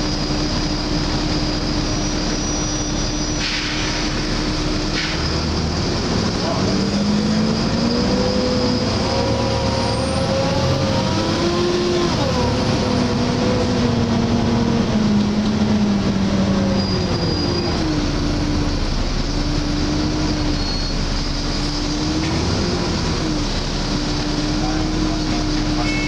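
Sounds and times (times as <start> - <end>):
bus diesel engine: 0.0 - 26.0.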